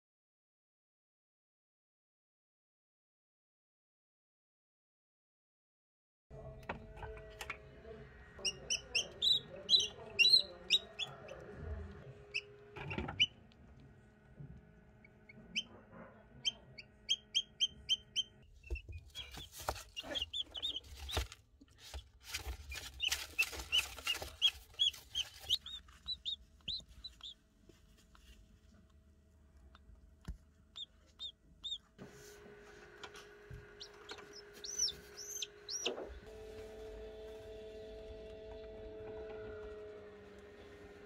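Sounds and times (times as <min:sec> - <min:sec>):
chicks peeping: 0:08.4 - 0:13.6, 0:15.0 - 0:27.4, 0:29.7 - 0:32.0, 0:33.0 - 0:36.3
rustling and knocks: 0:18.7 - 0:26.0.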